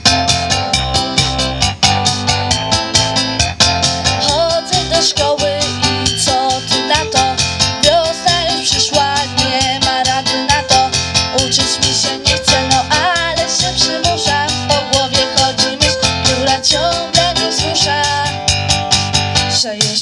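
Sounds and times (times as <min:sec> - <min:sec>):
pop backing track with beat: 0:00.0 - 0:20.0
girl singing into a microphone: 0:04.1 - 0:18.5, 0:19.4 - 0:20.0.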